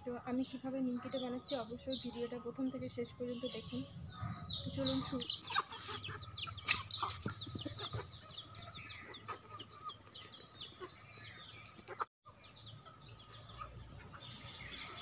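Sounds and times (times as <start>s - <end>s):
chickens clucking and calling: 4.1s - 15.0s.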